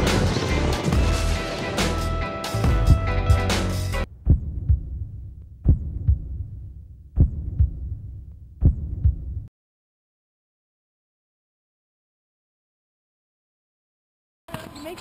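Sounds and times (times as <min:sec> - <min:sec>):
music: 0:00.0 - 0:04.1
heartbeat double thumps: 0:04.0 - 0:09.5
low hum: 0:04.0 - 0:09.5.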